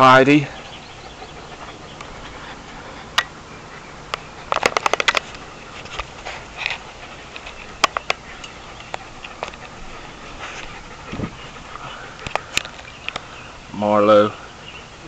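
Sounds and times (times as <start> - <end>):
dog claws clicking on wooden boards: 4.5 - 6.1.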